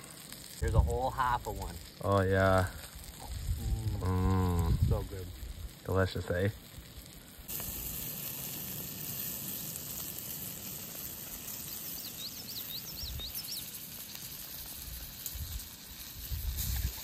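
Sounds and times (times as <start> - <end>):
fish sizzling in a pan: 0.0 - 17.0
bird chirping: 11.6 - 14.2.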